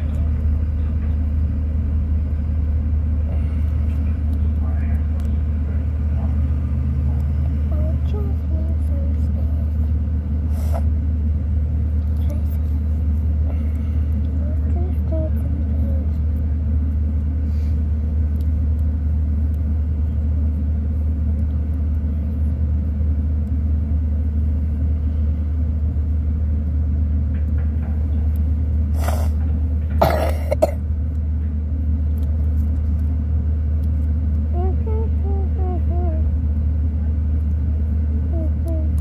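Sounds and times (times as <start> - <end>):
steady low rumble: 0.0 - 39.0
person coughing: 30.0 - 30.8.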